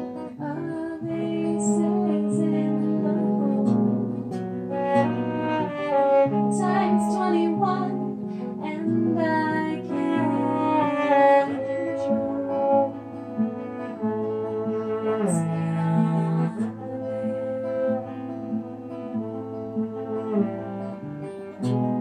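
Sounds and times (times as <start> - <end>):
woman singing: 0.0 - 4.2, 6.3 - 12.7, 15.2 - 17.4
acoustic guitar: 0.0 - 22.0
cello low notes: 0.0 - 22.0.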